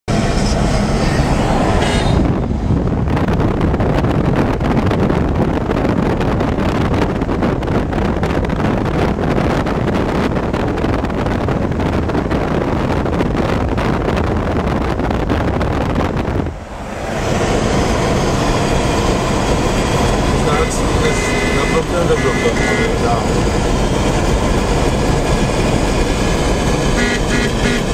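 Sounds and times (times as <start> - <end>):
car wind and road noise: 0.1 - 27.9
wind buffeting microphone: 0.1 - 27.9.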